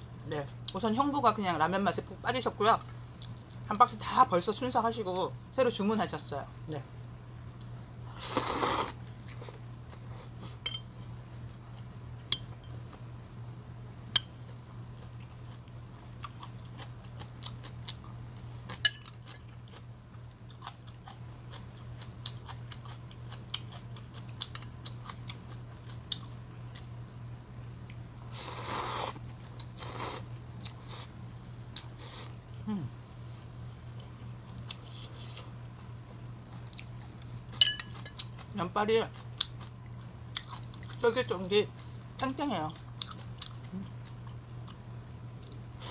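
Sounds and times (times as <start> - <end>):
steady low hum: 0.0 - 45.9
chewing: 14.5 - 26.9, 36.5 - 38.5, 39.1 - 41.0, 42.7 - 44.8.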